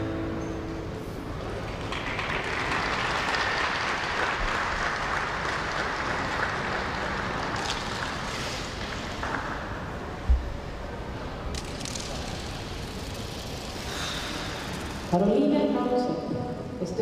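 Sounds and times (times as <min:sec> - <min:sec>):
audience applauding: 0:01.5 - 0:09.7.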